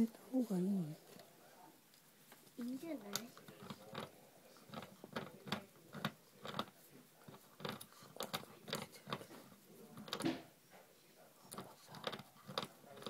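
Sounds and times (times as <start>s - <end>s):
puppy gnawing cane: 3.0s - 10.4s, 11.5s - 13.0s.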